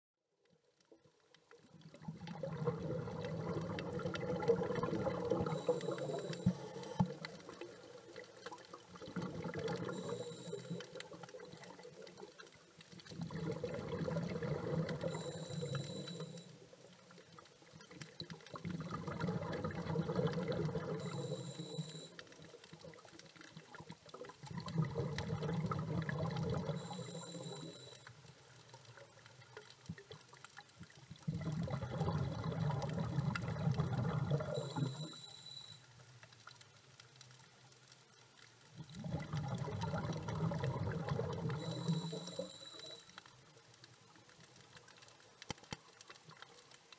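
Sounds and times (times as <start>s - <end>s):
bubbling exhaled air: 2.0s - 6.8s, 9.0s - 10.2s, 13.1s - 16.1s, 18.6s - 21.3s, 24.5s - 27.6s, 31.2s - 35.0s, 38.9s - 43.0s.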